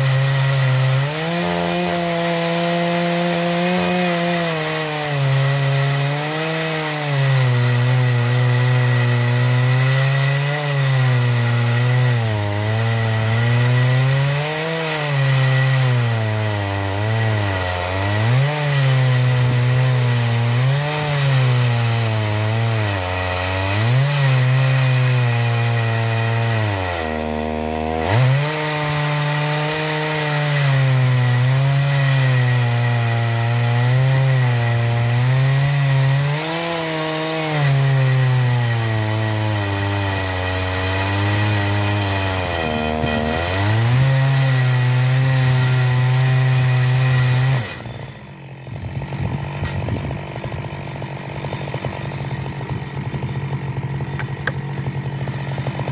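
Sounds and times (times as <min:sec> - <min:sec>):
chainsaw cutting log: 0:00.0 - 0:55.9.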